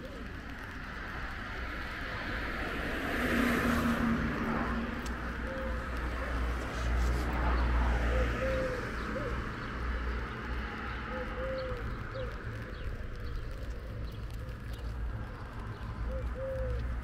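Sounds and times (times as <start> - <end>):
dove cooing: 0.0 - 0.4, 5.2 - 6.4, 8.0 - 9.7, 11.1 - 15.0, 16.0 - 17.0.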